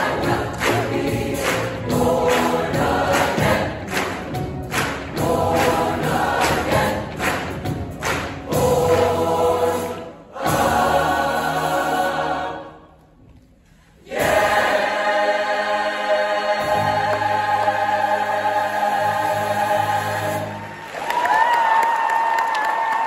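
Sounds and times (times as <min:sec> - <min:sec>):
piano guitar and drums: 0:00.0 - 0:09.0
choir singing gospel song: 0:00.0 - 0:13.1, 0:13.9 - 0:21.2.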